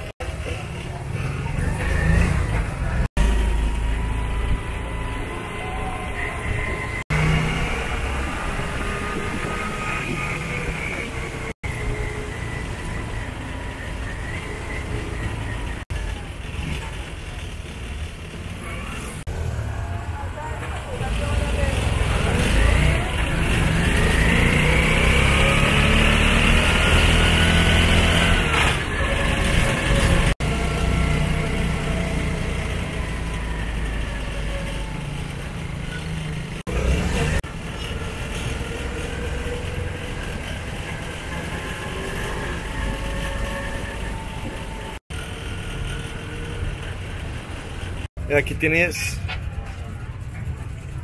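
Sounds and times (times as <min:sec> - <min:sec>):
vehicle engine revving: 0:01.2 - 0:05.6, 0:06.2 - 0:11.8, 0:20.9 - 0:48.1.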